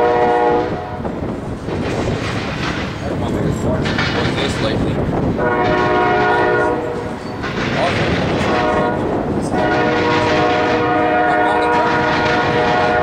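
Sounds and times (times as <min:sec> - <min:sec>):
locomotive horn blasts: 0:00.0 - 0:01.1, 0:05.4 - 0:07.1, 0:08.4 - 0:13.0
freight train wheels clattering: 0:00.0 - 0:13.0.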